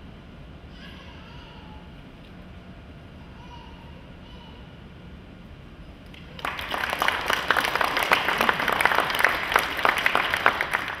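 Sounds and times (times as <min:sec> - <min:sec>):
audience applauding: 0:06.1 - 0:11.0.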